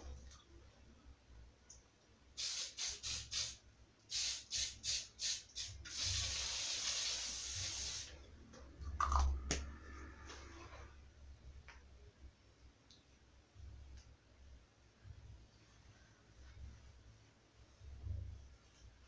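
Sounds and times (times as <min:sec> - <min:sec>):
aerosol hair spray spraying: 0:02.4 - 0:08.1.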